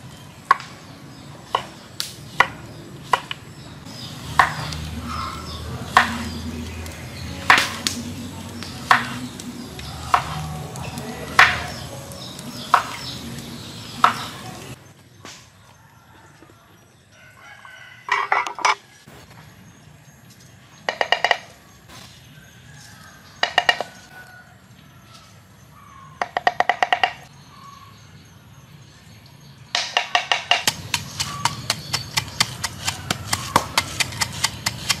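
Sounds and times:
knife chopping on wooden board: 0:05.9 - 0:06.4, 0:08.8 - 0:10.6, 0:30.0 - 0:35.0.

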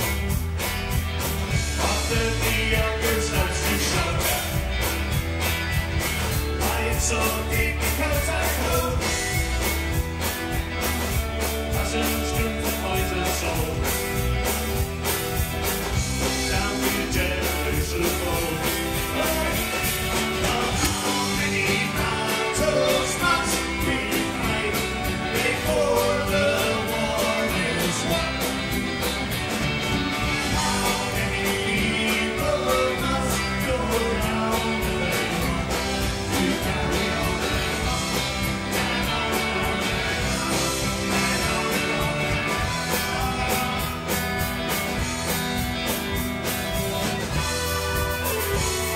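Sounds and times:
folk-rock band playing: 0:00.0 - 0:48.9
person singing: 0:01.8 - 0:04.7, 0:06.5 - 0:09.3, 0:11.7 - 0:14.0, 0:16.2 - 0:28.8, 0:30.4 - 0:44.3.

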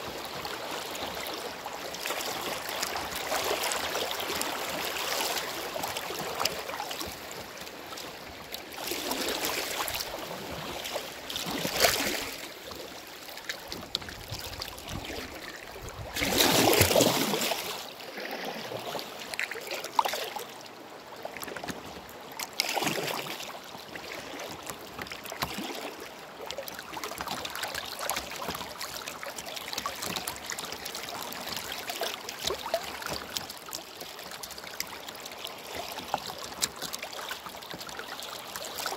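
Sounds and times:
water splashing: 0:00.0 - 0:20.6, 0:21.3 - 0:38.9.

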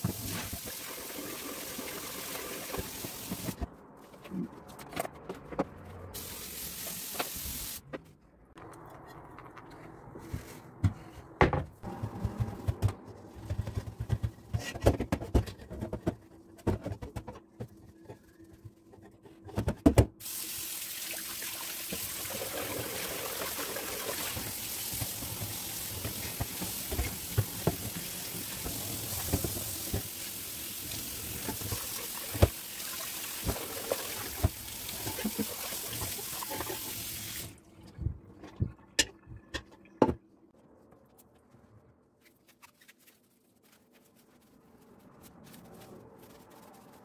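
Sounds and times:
tap water running into pot: 0:20.2 - 0:37.5.

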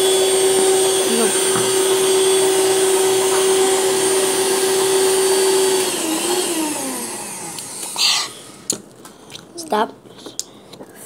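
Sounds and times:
electric motor whine: 0:00.0 - 0:08.7.

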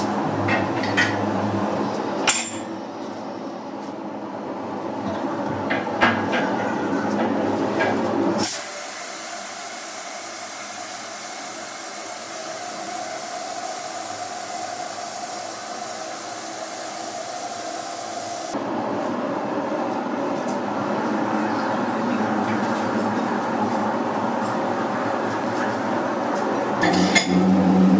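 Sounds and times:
loud steady pressure hiss: 0:08.4 - 0:18.6.

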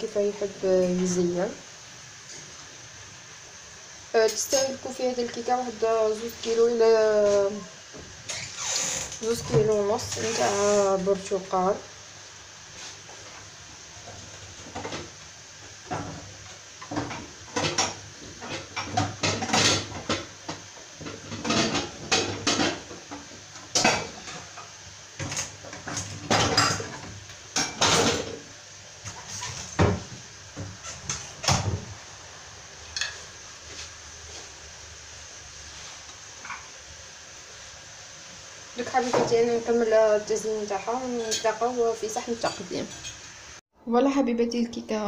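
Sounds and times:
plates clattering on counter: 0:15.9 - 0:24.5, 0:25.2 - 0:28.4.

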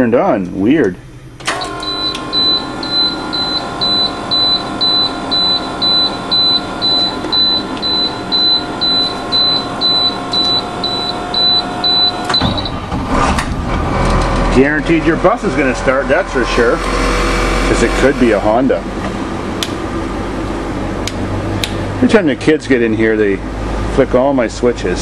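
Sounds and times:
steady electrical whine: 0:00.0 - 0:25.0
high-pitched warning alarm beeping: 0:01.6 - 0:12.8.

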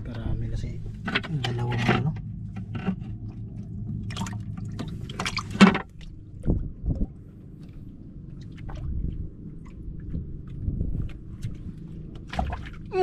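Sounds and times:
steady low hum: 0:00.0 - 0:13.0
dull low thumps: 0:02.2 - 0:12.8
water splashing and dripping: 0:03.2 - 0:13.0.

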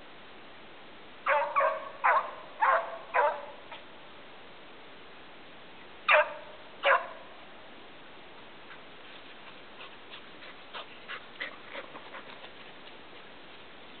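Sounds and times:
dog barking: 0:01.3 - 0:03.8, 0:06.1 - 0:07.3.

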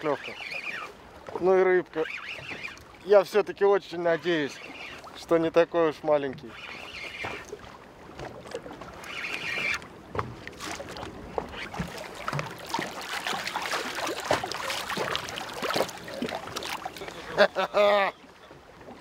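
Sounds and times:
fishing reel whirring: 0:00.0 - 0:00.9, 0:01.9 - 0:02.9, 0:04.2 - 0:05.1, 0:06.5 - 0:07.6, 0:09.0 - 0:09.8
waves lapping: 0:00.0 - 0:19.0
fish splashing at water surface: 0:10.4 - 0:17.7.

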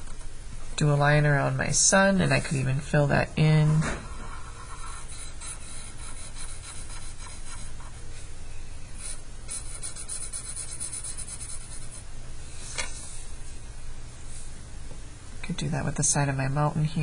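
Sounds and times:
marker scribbling on paper: 0:04.4 - 0:07.9, 0:09.0 - 0:12.0.

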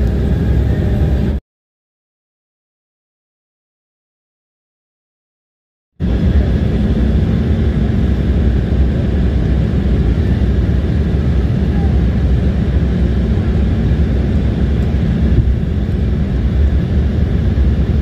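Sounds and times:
airliner engines and airflow rumble: 0:00.0 - 0:01.4, 0:06.0 - 0:18.0.

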